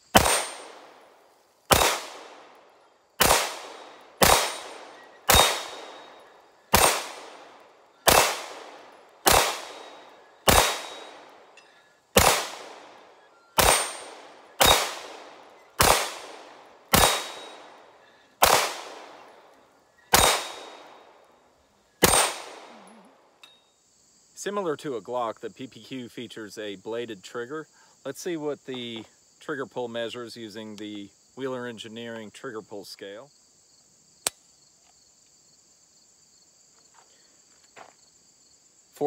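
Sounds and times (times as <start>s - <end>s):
suppressed pistol shots: 0.1s - 1.0s, 1.7s - 2.6s, 3.2s - 11.5s, 12.2s - 19.4s, 20.1s - 21.1s, 22.0s - 22.8s.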